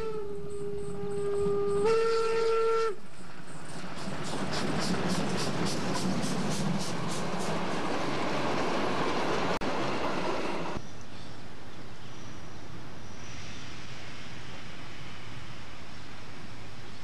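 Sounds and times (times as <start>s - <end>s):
outdoor background noise: 0.0s - 17.0s
train wheels rushing on rail: 0.8s - 10.8s.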